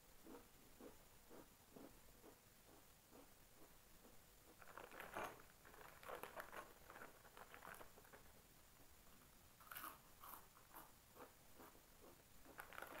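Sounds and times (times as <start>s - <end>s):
foil chip packet crackling: 4.6s - 8.3s, 12.6s - 13.0s.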